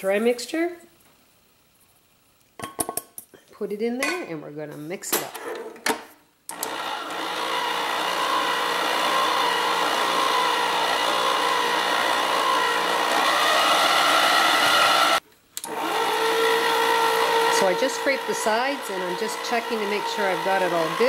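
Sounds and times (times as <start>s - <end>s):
stand mixer motor whining: 6.5s - 21.0s.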